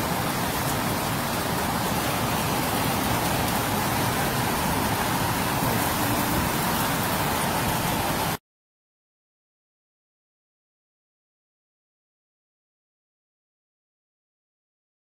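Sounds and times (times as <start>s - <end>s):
heavy rain and hail on roofs: 0.0s - 8.4s.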